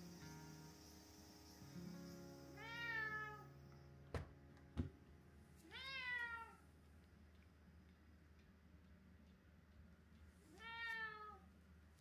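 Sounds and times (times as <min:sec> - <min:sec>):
cat meowing: 0:02.6 - 0:03.5, 0:05.6 - 0:06.6, 0:10.5 - 0:11.5.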